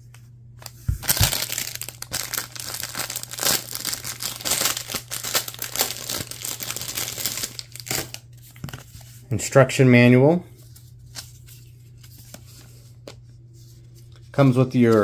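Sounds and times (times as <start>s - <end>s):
low steady hum: 0.0s - 15.0s
packaging crinkling and rustling: 0.6s - 9.0s.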